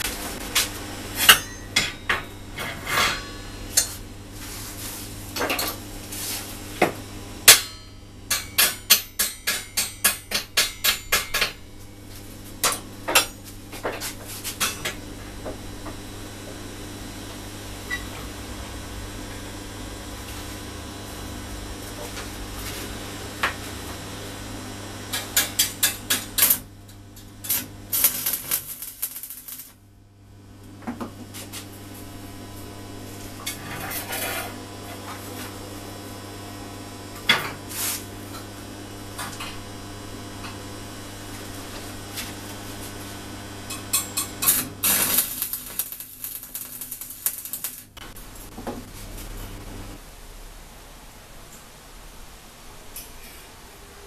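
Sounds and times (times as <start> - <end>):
steady low hum: 0.0 - 53.0
welding arc crackling: 8.3 - 30.6, 31.4 - 50.0.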